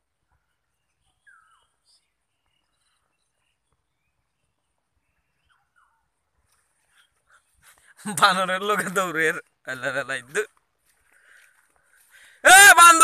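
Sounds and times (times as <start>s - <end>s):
high bird chirps: 0.7s - 6.0s.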